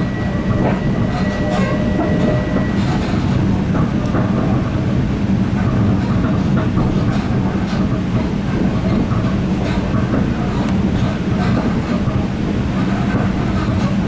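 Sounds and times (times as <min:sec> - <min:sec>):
train rumbling: 0:00.0 - 0:14.0
wheels clicking on track: 0:00.1 - 0:14.0.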